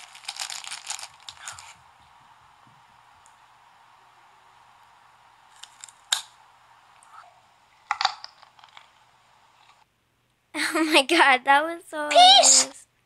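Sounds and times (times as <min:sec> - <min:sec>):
carrot crunching: 0:00.0 - 0:01.8
faint steady hiss: 0:00.0 - 0:13.0.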